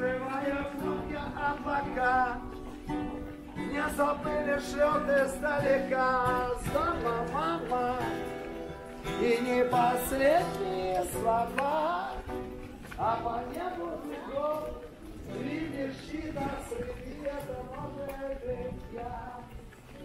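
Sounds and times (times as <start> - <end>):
strummed acoustic guitar: 0.0 - 14.6.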